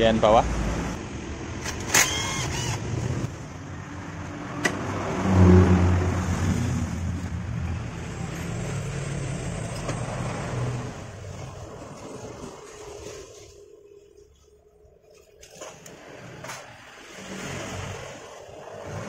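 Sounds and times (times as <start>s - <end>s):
vehicle engine rumble: 0.0s - 14.2s
impact wrench whirring: 1.6s - 2.8s.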